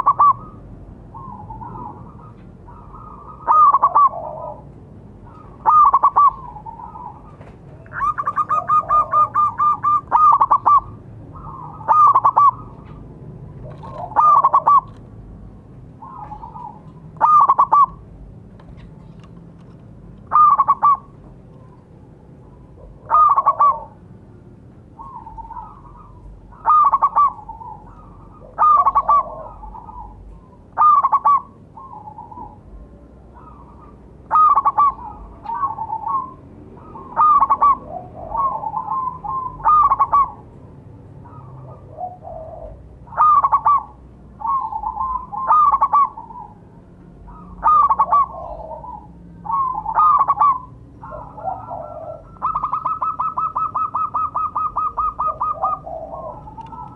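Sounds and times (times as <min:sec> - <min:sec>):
dove stuttering cooing: 0:00.0 - 0:00.6, 0:01.2 - 0:15.0, 0:22.7 - 0:24.0, 0:25.0 - 0:32.7, 0:33.3 - 0:40.4, 0:41.2 - 0:46.6, 0:47.3 - 0:56.9.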